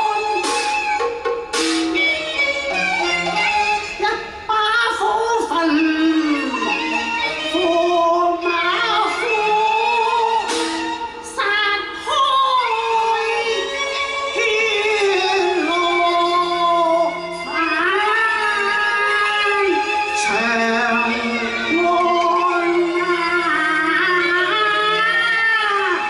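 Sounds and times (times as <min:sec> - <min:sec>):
instrumental accompaniment: 0:00.0 - 0:26.0
woman singing opera: 0:04.0 - 0:10.5, 0:11.2 - 0:26.0.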